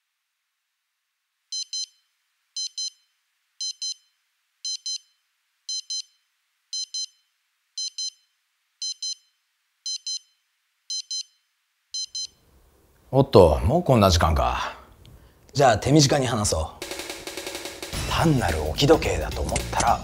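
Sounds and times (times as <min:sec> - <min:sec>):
electronic alarm double beeps: 0:01.6 - 0:04.1, 0:04.7 - 0:06.2, 0:06.8 - 0:12.4.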